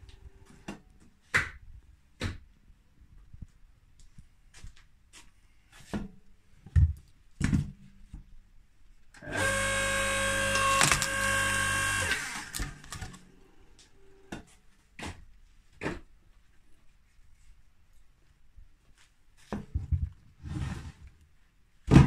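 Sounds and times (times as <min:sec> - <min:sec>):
electric motor whine: 0:09.2 - 0:13.1
wood cracking: 0:10.6 - 0:11.2.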